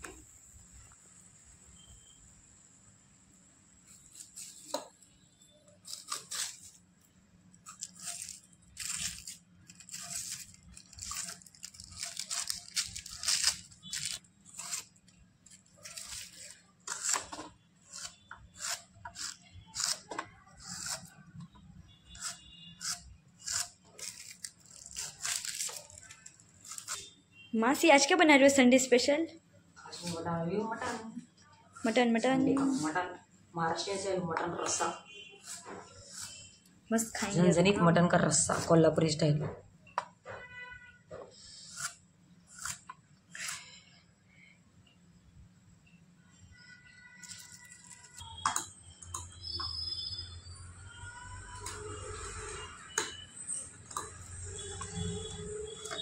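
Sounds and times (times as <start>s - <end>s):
onion slicer cutting strokes: 5.8s - 6.8s, 7.6s - 21.2s, 22.1s - 27.2s, 35.4s - 36.6s, 41.4s - 43.8s.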